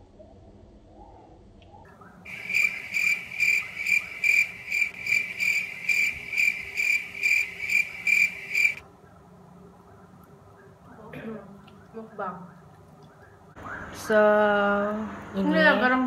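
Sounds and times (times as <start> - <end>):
high-pitched cricket chirps: 2.3 - 8.8.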